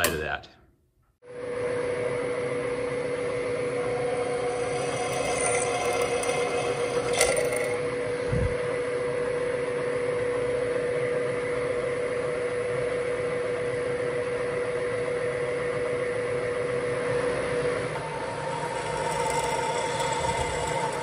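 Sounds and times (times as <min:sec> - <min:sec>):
milling machine spindle humming: 0:03.1 - 0:08.0, 0:17.8 - 0:21.0.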